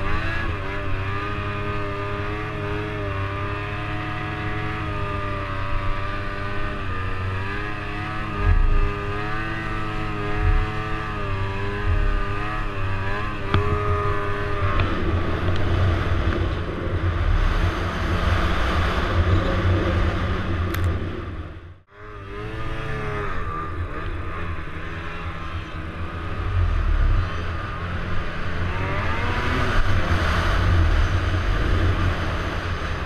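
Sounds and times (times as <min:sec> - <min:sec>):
snowmobile engine revving: 0:00.0 - 0:33.0
rough rushing noise: 0:06.0 - 0:24.3, 0:26.0 - 0:33.0.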